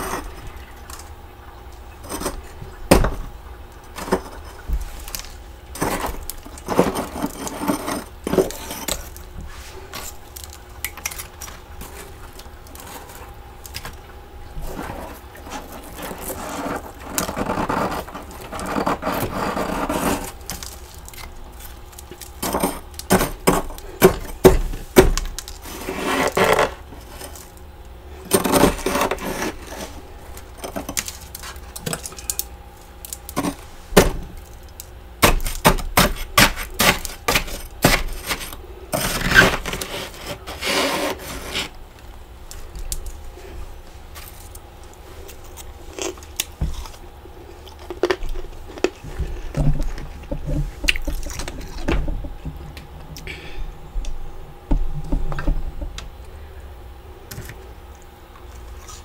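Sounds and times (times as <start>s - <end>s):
spoon scraping frost: 0.0s - 0.5s, 2.0s - 2.6s, 3.9s - 13.8s, 14.6s - 27.6s, 28.2s - 32.5s, 33.1s - 33.8s, 35.2s - 41.8s.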